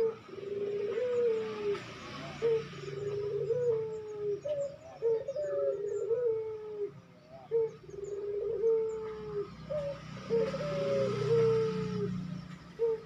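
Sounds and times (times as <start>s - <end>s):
dove cooing: 0.0s - 13.0s.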